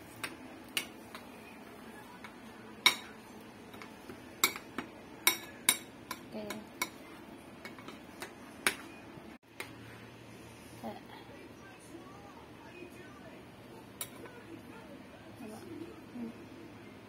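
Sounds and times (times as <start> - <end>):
metal spoon clinking on plate: 2.8 - 7.0.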